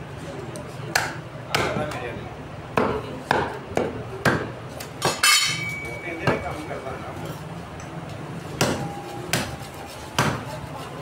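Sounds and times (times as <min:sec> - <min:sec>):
cleaver chopping on wooden block: 0:02.8 - 0:05.2
thin metallic ring: 0:05.2 - 0:06.2.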